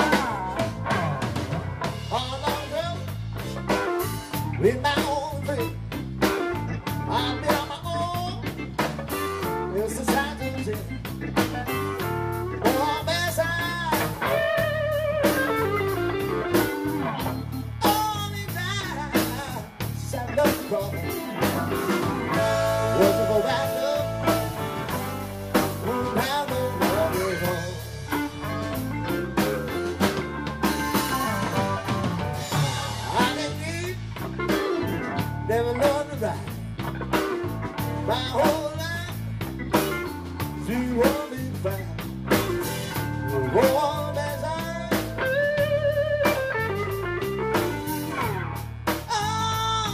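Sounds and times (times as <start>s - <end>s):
blues band playing: 0.0s - 49.9s
electric guitar lead line: 0.0s - 49.9s
harmonica: 2.1s - 36.1s.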